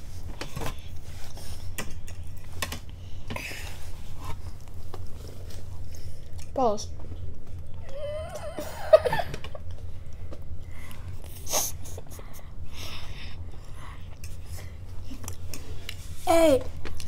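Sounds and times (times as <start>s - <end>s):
child stifled laughter: 7.9s - 9.6s.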